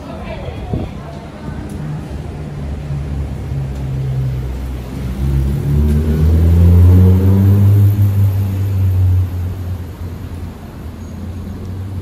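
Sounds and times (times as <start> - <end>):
low traffic rumble: 0.0 - 12.0
vehicle engine accelerating past: 2.5 - 10.5.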